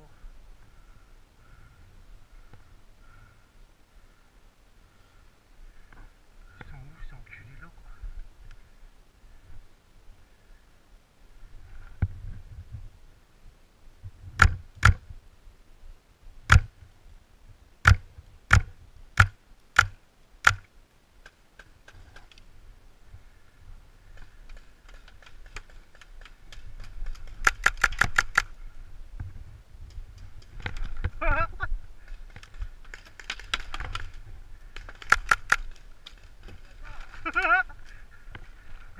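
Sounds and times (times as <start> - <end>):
paintball marker shots: 16.5 - 16.7, 17.8 - 20.7.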